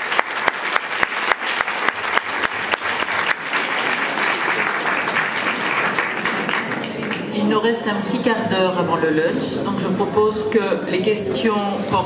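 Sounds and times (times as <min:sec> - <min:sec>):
audience applauding: 0:00.0 - 0:07.3
loud close hand claps: 0:00.0 - 0:07.3.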